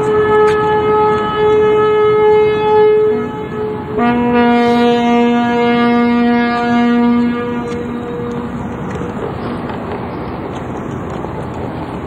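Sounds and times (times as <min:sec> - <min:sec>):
steam whistle blast: 0:00.0 - 0:08.4
deeper steam whistle: 0:00.0 - 0:08.9.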